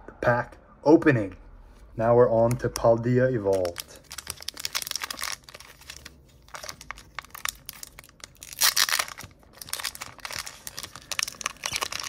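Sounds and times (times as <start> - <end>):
foil wrapper crinkling: 3.5 - 12.0
foil wrapper ripping: 3.5 - 12.0.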